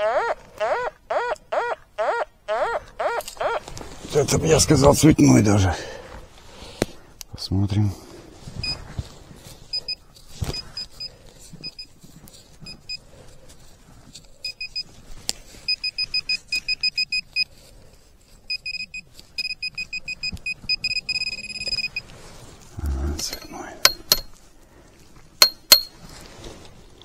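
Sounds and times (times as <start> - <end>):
metal detector short high beeps: 15.7 - 17.5, 18.5 - 22.0
digging knocks: 23.2 - 24.4, 25.4 - 26.0.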